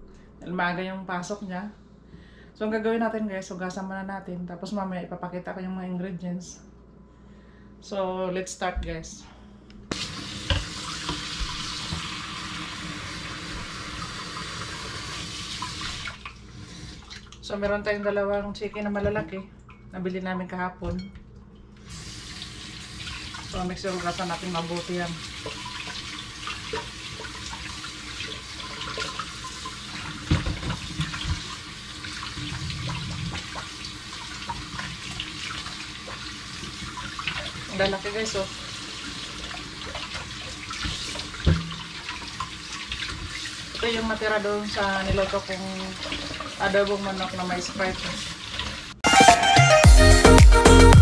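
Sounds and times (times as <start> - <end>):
faucet water splashing in sink: 9.9 - 17.5, 21.8 - 49.0.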